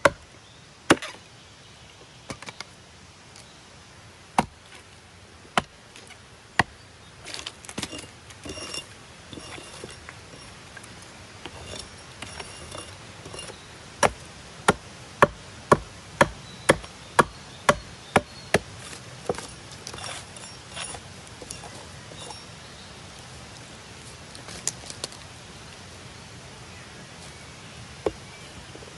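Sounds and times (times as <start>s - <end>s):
hatchet chopping log: 0.0s - 0.2s, 0.9s - 1.2s, 4.4s - 4.6s, 5.5s - 10.4s, 11.5s - 22.4s
wood chips scraping: 5.6s - 14.4s, 18.5s - 25.3s.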